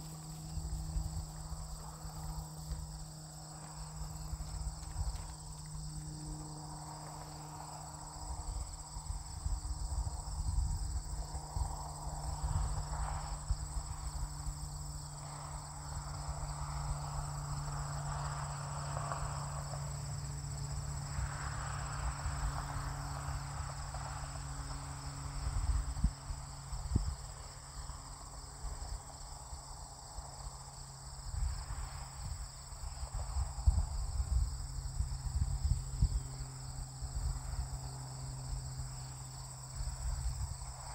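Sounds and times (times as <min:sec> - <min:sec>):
steady low hum: 0:00.0 - 0:18.8
insects chirring: 0:00.0 - 0:40.9.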